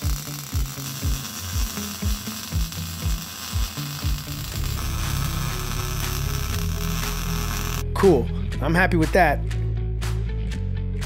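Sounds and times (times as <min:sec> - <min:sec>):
welding arc hiss: 0:00.0 - 0:07.8
buzzing bass: 0:00.0 - 0:08.0
electronic music with kick drum: 0:00.0 - 0:08.0.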